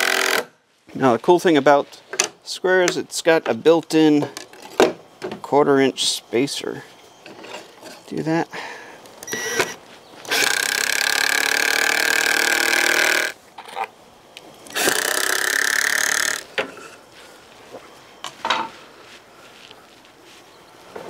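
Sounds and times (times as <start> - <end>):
cordless drill driving screws: 0.0 - 0.5, 9.2 - 13.4, 14.7 - 16.4
tools and lumber knocking: 10.3 - 13.9.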